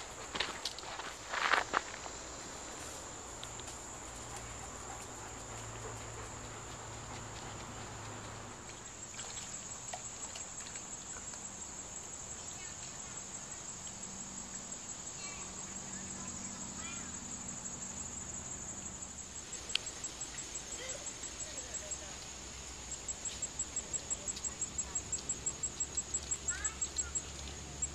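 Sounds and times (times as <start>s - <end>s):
insects buzzing: 0.0s - 27.9s
faint ticks: 3.3s - 11.7s, 12.7s - 14.1s, 18.7s - 22.3s, 23.0s - 27.9s.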